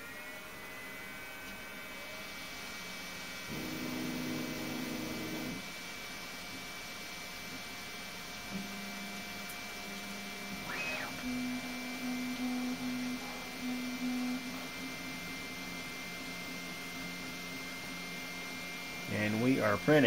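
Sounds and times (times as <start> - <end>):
steady hum: 8.6 - 20.0
stepper motors whining: 10.5 - 14.6.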